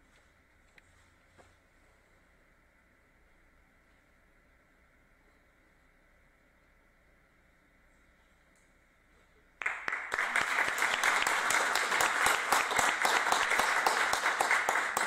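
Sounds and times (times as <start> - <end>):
audience applauding: 9.6 - 15.0.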